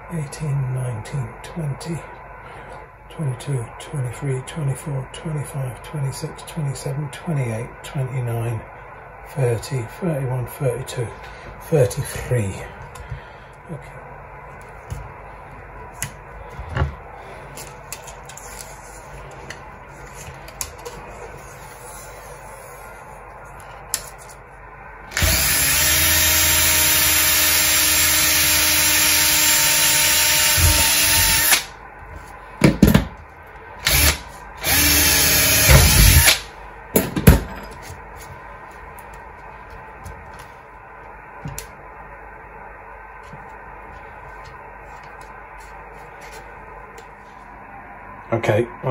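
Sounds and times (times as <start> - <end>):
cordless drill boring into plastic: 25.1 - 31.7, 33.8 - 36.4.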